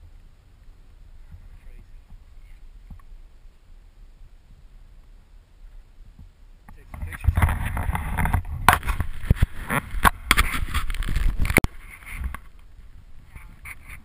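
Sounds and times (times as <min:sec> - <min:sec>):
faint rustling: 0:00.0 - 0:14.0
wind buffeting microphone: 0:00.0 - 0:14.0
knocks and scrapes: 0:06.7 - 0:14.0.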